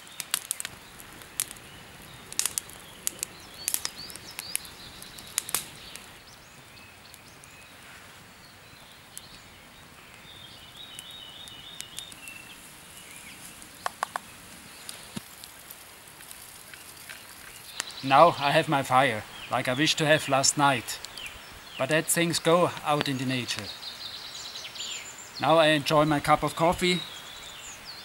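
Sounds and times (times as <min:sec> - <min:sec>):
campfire crackling: 0:00.0 - 0:28.0
small birds chirping: 0:00.0 - 0:28.0
sharp pops: 0:02.3 - 0:06.1, 0:13.6 - 0:16.8.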